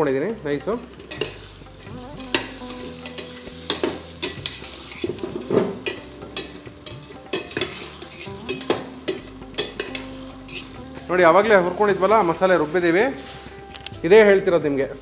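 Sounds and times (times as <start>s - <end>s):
vegetables sizzling in oil: 0.0s - 15.0s
metal ladle clinking and scraping: 0.7s - 10.8s.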